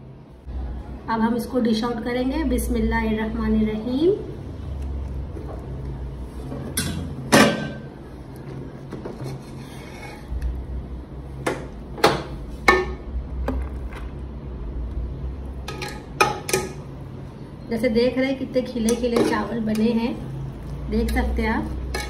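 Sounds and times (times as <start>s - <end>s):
low steady hum: 0.0s - 22.0s
spoon clinking and scraping pot: 21.0s - 22.0s.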